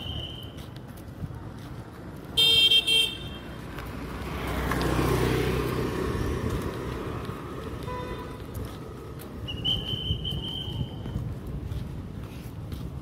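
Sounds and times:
motor scooter passing: 1.8s - 10.6s
vehicle horn beeps: 2.4s - 3.5s, 7.8s - 8.5s.

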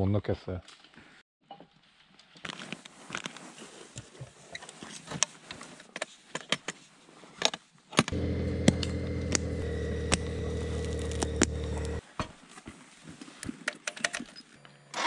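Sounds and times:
clicks and clatter of gear: 7.4s - 12.0s, 13.2s - 15.0s
motorcycle engine idling: 8.1s - 12.0s.

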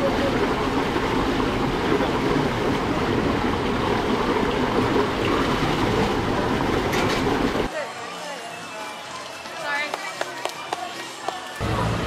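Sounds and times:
water rushing: 0.0s - 7.7s.

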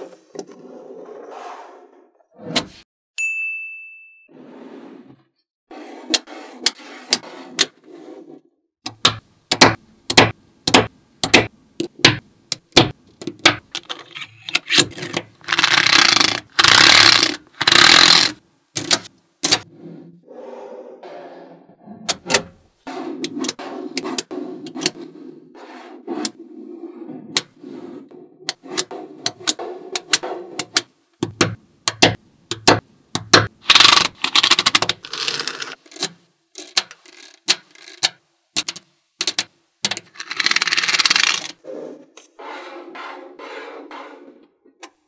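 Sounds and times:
card scraping across balls: 4.5s - 8.4s, 14.0s - 20.1s, 22.8s - 30.8s, 33.6s - 36.0s, 39.3s - 41.6s, 42.2s - 44.5s
magnetic balls clicking together: 29.3s - 41.6s.

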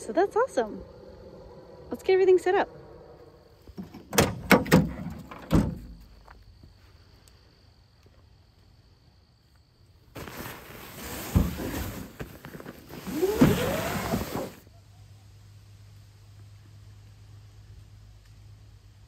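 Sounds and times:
thump: 3.8s - 6.0s, 11.3s - 11.8s
bags scraping on plastic bed liner: 10.1s - 14.6s
fabric squeaking on plastic: 10.2s - 14.6s.

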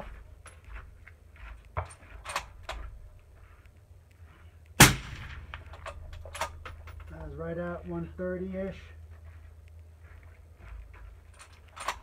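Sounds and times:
suppressed rifle shot: 4.8s - 5.7s.

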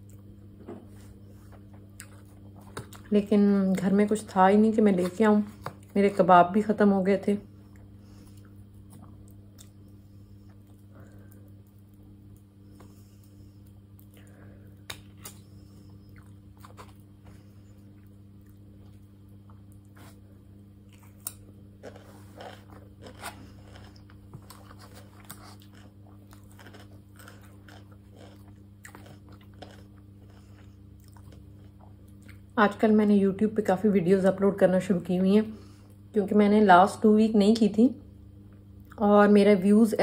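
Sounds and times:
person chewing and crunching food: 0.0s - 3.1s, 7.7s - 32.6s
steady low hum: 0.0s - 40.0s.

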